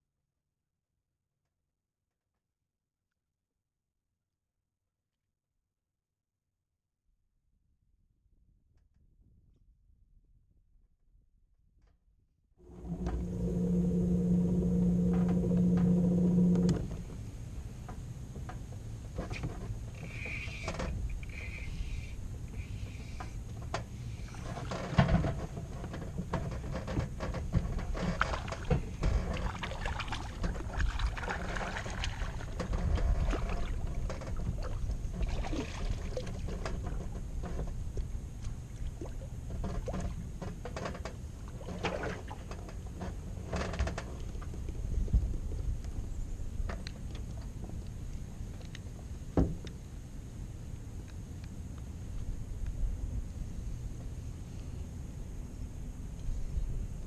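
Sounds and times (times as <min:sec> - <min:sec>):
loud steady hum: 0:12.6 - 0:18.3
wind and water rumble: 0:12.6 - 0:57.0.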